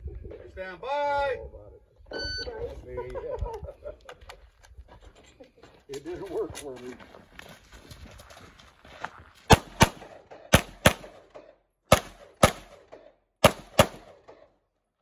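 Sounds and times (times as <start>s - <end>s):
pistol shots with echo: 9.5s - 14.5s.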